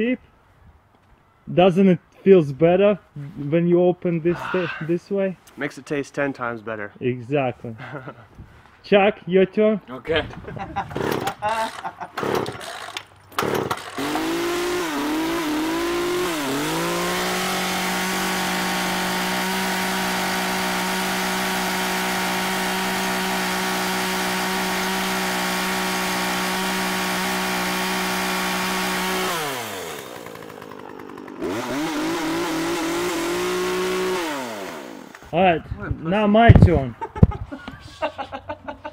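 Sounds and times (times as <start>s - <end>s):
chainsaw revving: 10.9s - 35.3s.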